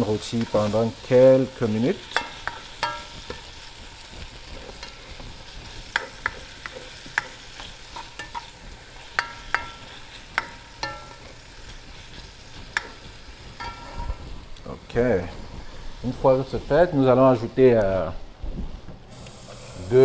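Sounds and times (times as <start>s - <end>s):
meat and vegetables sizzling in oil: 0.0s - 17.2s, 19.1s - 20.0s
spatula clinking against metal pot: 2.1s - 3.5s, 5.9s - 8.5s, 9.1s - 11.4s, 13.6s - 14.2s.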